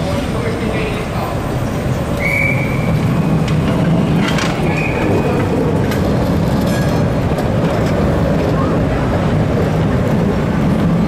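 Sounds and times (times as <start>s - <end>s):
tram wheels rumbling on rails: 0.0s - 11.0s
high wheel squeals: 2.0s - 3.2s, 4.5s - 5.4s.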